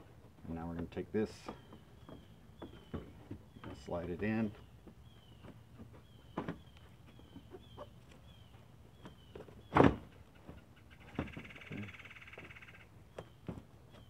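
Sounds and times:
loud thunk: 0:09.7 - 0:10.1.

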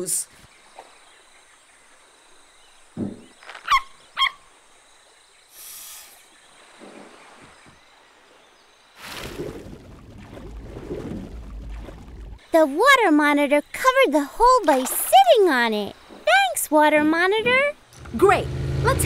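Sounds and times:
forest background: 0:00.0 - 0:19.0
soft knock: 0:03.0 - 0:03.3
short hiss: 0:05.5 - 0:06.3.

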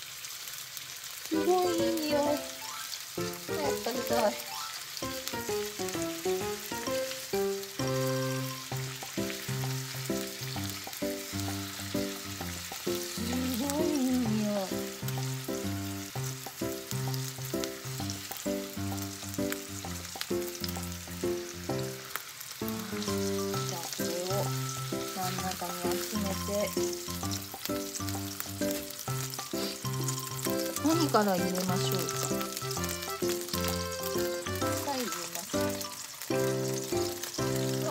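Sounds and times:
beef sizzling in a skillet: 0:00.0 - 0:37.9
melodic tune with bass line: 0:01.4 - 0:22.0, 0:22.7 - 0:37.9.

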